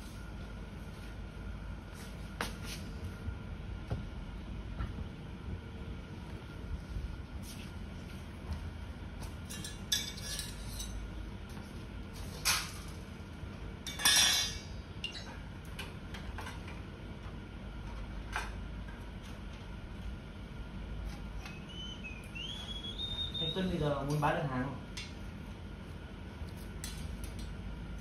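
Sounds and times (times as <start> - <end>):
sheet metal clinking and clattering: 13.9 - 15.4.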